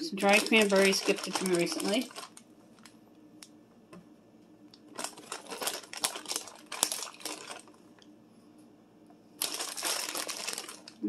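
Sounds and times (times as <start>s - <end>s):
plastic bag crinkling: 0.0s - 3.0s, 4.8s - 8.0s, 9.4s - 11.0s.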